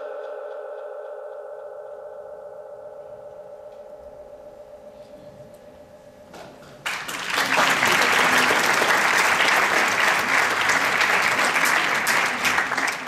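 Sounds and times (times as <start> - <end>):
audience applauding: 6.8 - 13.0.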